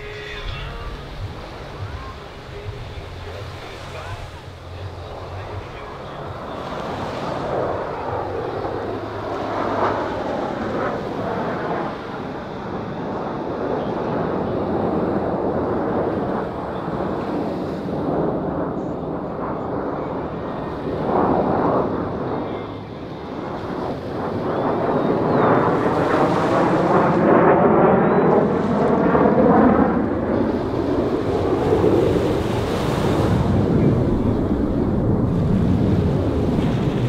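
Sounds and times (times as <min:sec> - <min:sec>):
jet roar: 0:00.0 - 0:37.0.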